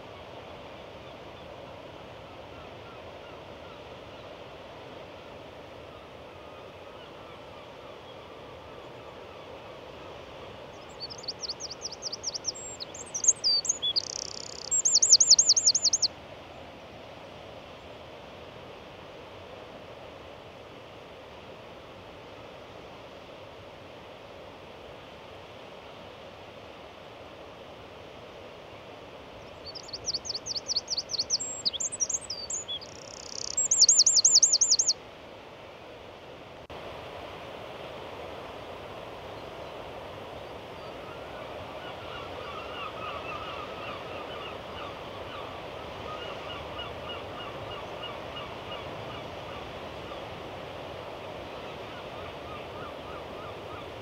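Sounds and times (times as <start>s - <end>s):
wind and surf hiss: 0.0s - 54.0s
songbird singing: 10.4s - 16.1s, 29.4s - 35.0s, 40.4s - 49.2s.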